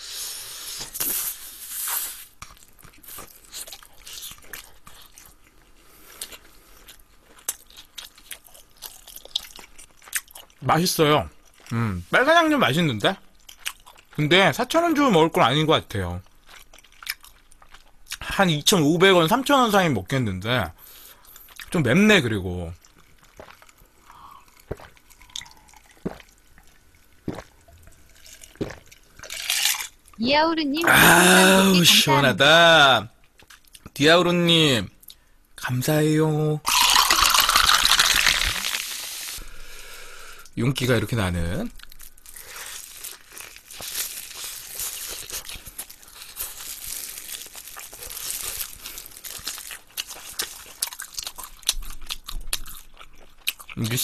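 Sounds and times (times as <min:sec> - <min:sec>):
chewing crispy fried chicken: 0:02.0 - 0:11.9, 0:13.2 - 0:14.4, 0:16.2 - 0:18.4, 0:22.7 - 0:30.2, 0:41.8 - 0:54.0
person gulping drink: 0:22.9 - 0:30.0, 0:36.7 - 0:38.9
plastic glove crinkling: 0:41.7 - 0:51.2.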